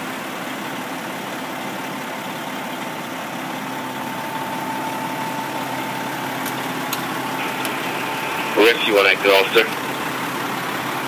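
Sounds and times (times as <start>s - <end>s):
diesel engine running: 0.0s - 11.0s
faint steady whine: 2.6s - 11.0s.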